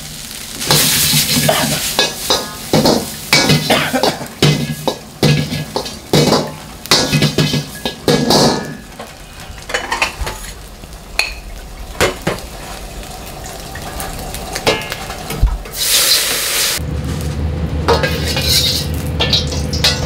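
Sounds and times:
gas burner roaring: 0:00.0 - 0:20.0
metal ladle scraping a wok: 0:00.6 - 0:10.6, 0:15.7 - 0:16.8, 0:17.9 - 0:20.0.

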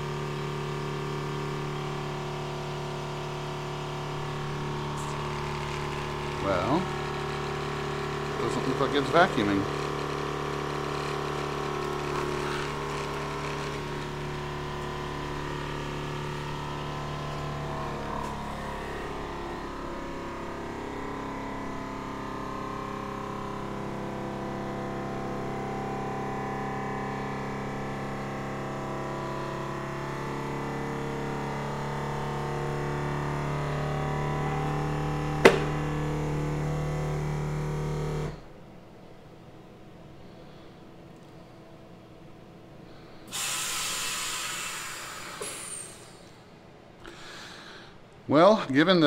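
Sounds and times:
vacuum pump humming: 0:00.0 - 0:38.6.

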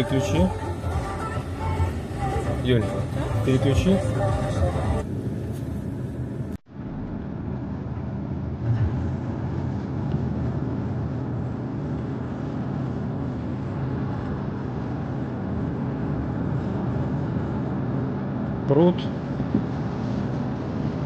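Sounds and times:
car engine and tyre noise: 0:00.0 - 0:21.0.

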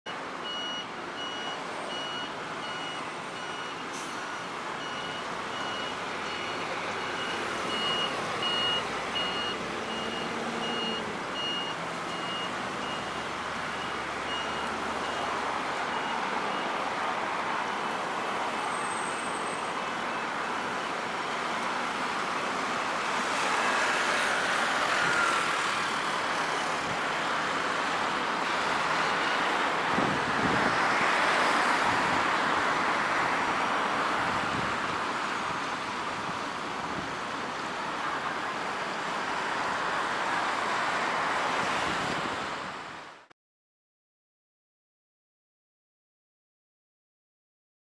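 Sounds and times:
high electronic beep: 0:04.8 - 0:13.0.

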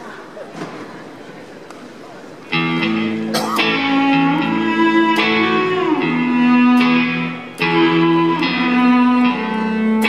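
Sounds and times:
electric guitar ringing chords: 0:02.5 - 0:10.0.

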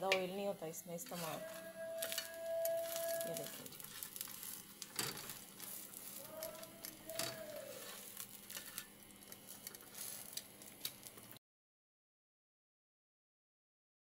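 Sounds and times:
metal spatula scraping on iron: 0:01.0 - 0:08.9, 0:09.5 - 0:10.4
oil crackling: 0:01.0 - 0:11.4.

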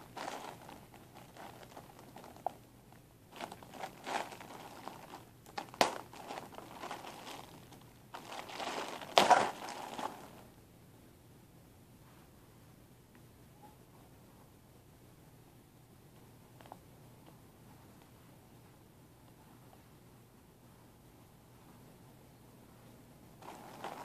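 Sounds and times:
plastic bag crinkling: 0:00.0 - 0:02.6, 0:03.3 - 0:10.5, 0:23.4 - 0:24.0.

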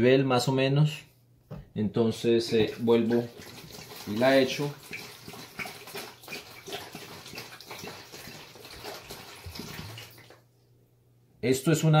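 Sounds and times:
water pouring from bottle: 0:02.4 - 0:10.4.

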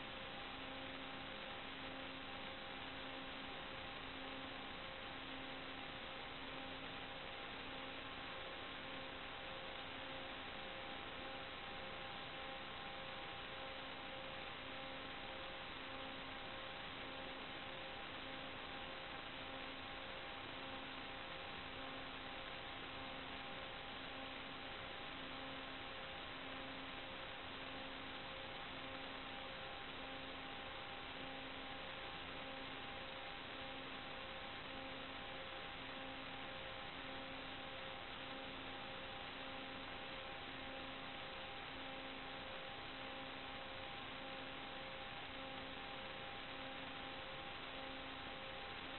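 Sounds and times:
steady electronic hiss: 0:00.0 - 0:48.9.

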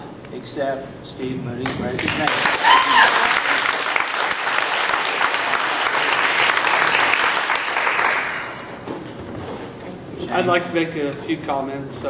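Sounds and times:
audience clapping: 0:01.6 - 0:08.8.

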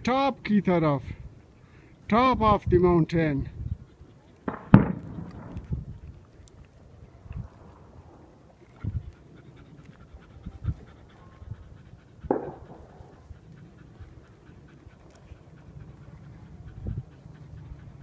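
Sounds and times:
dog panting: 0:02.9 - 0:06.4, 0:07.7 - 0:18.0
low thumps: 0:04.5 - 0:06.0.

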